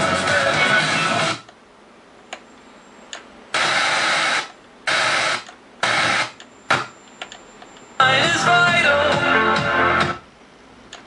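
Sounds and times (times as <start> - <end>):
snatches of radio broadcast: 3.5 - 7.0.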